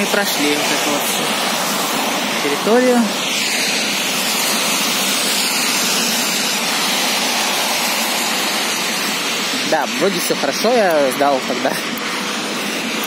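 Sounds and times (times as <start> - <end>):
traffic on wet road: 0.0 - 13.0.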